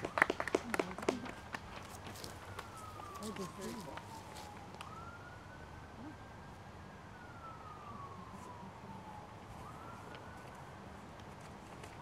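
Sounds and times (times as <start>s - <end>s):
emergency vehicle siren wailing: 0.0s - 12.0s.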